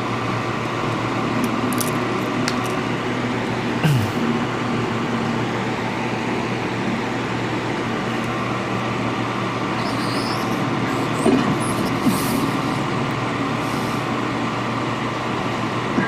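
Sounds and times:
hot-air blower humming: 0.0s - 16.0s.

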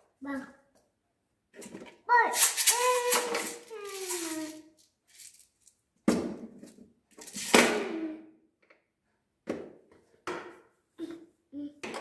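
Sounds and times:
plastic toy dishes clattering: 2.4s - 4.4s.

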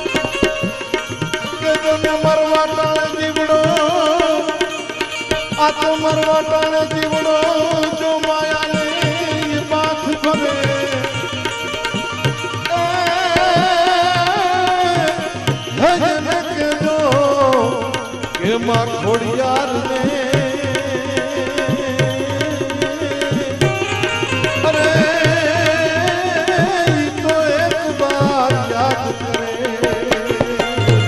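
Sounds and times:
drum strokes: 0.0s - 3.0s, 28.0s - 31.0s
harmonium: 0.0s - 31.0s
man singing: 0.0s - 31.0s.

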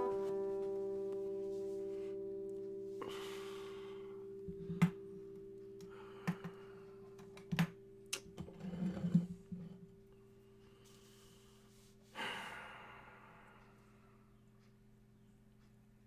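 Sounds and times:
acoustic guitar strings ringing: 0.0s - 7.4s.

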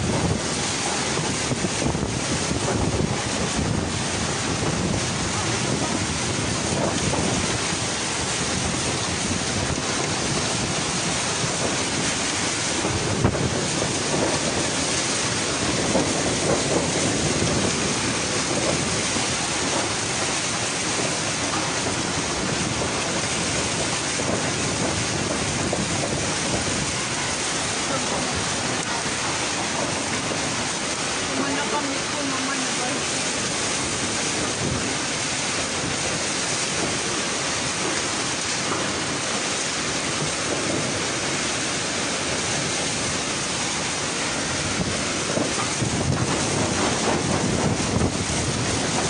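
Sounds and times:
heavy rain: 0.0s - 49.0s
strong wind: 0.0s - 49.0s.

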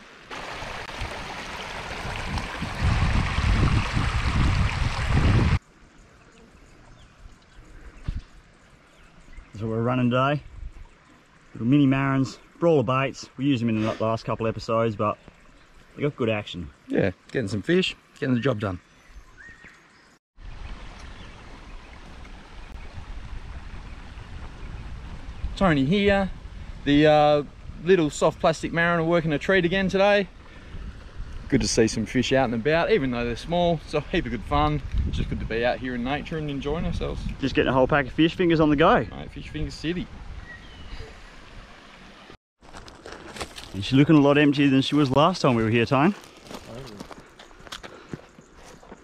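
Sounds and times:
water rushing over rocks: 0.0s - 5.6s
running water rushing: 0.0s - 7.0s, 20.4s - 34.4s, 35.7s - 42.4s
wind rumble on microphone: 1.0s - 5.6s, 22.0s - 29.0s, 29.7s - 41.7s.

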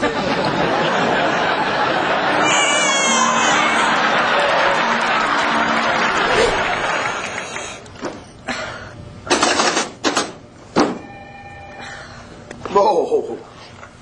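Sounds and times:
crowd noise: 0.0s - 7.8s.

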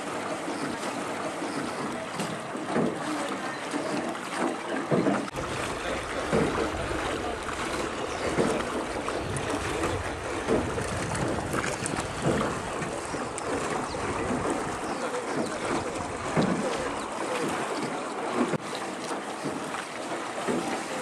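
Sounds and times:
oars splashing: 0.0s - 21.0s
water lapping around boat: 0.0s - 21.0s
wind rumble on microphone: 5.3s - 17.1s.

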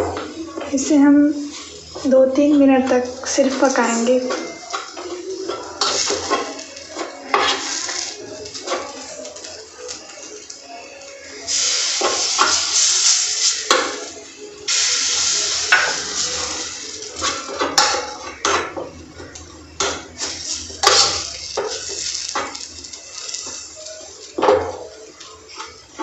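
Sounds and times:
hissing sizzle: 0.0s - 26.0s
metal spoon scraping a pan: 1.5s - 9.5s, 11.8s - 14.0s, 14.7s - 18.8s, 19.8s - 24.8s.

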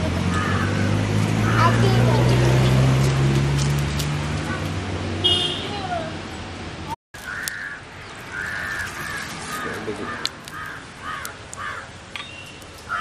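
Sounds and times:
crows cawing: 0.3s - 2.0s, 7.2s - 12.0s.

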